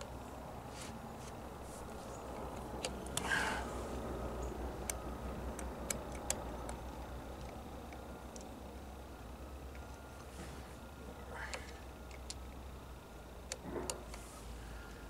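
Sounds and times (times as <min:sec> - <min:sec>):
short rustle: 0:00.7 - 0:02.2
sharp metal clicks: 0:02.2 - 0:03.3, 0:04.3 - 0:08.9, 0:11.5 - 0:12.7.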